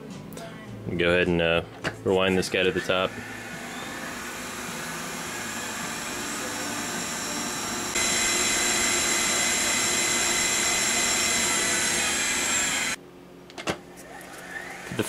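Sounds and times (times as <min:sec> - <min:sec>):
tape machine rewinding: 0:02.6 - 0:13.0.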